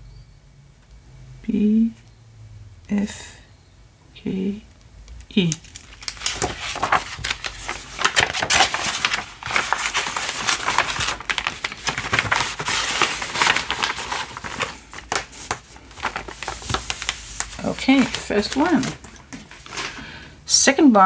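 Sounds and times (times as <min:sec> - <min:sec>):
plastic bag crinkling: 0:05.4 - 0:20.0.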